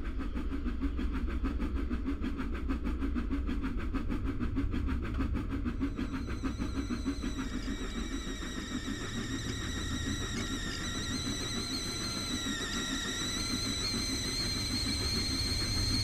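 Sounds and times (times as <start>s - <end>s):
low rumble of train: 0.0s - 16.0s
steam locomotive exhaust chuffs: 0.0s - 16.0s
thin high steady tones: 5.9s - 16.0s.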